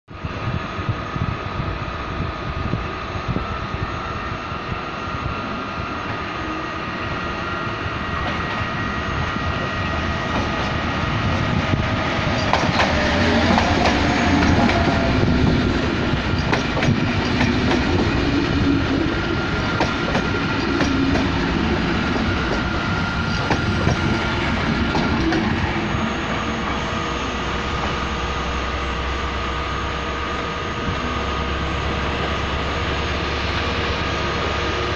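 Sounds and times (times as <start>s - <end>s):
train wheels clicking over rail joints: 8.1s - 8.7s, 10.0s - 28.2s.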